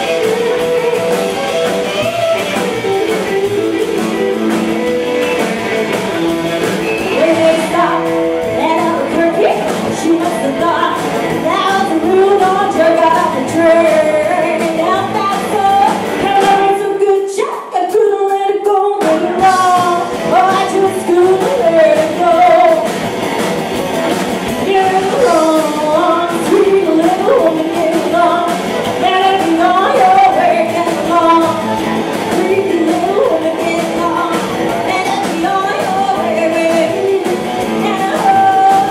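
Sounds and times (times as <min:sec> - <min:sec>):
drums: 0:00.0 - 0:38.9
electric guitar: 0:00.0 - 0:38.9
woman singing: 0:07.1 - 0:23.0, 0:24.4 - 0:38.9.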